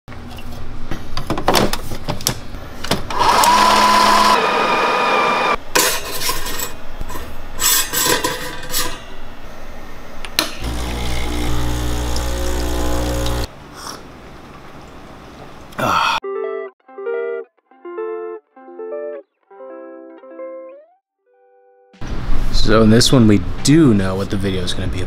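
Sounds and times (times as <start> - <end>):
espresso machine pump humming: 3.1 - 5.6, 10.6 - 13.5
loud motor whir: 3.1 - 5.6, 10.6 - 13.5.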